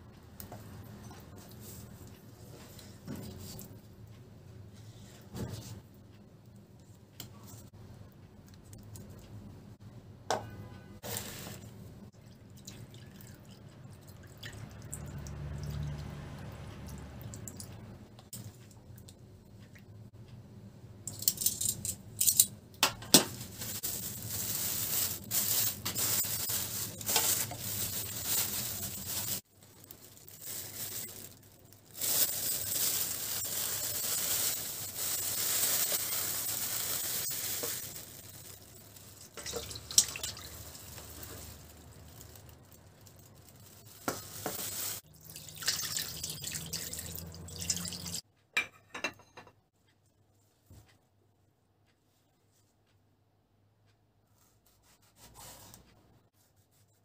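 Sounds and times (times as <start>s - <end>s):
tap water running: 39.2s - 41.2s, 44.0s - 48.2s
milk pouring in a stream: 45.0s - 48.2s
wet splashing in milk: 45.0s - 48.2s.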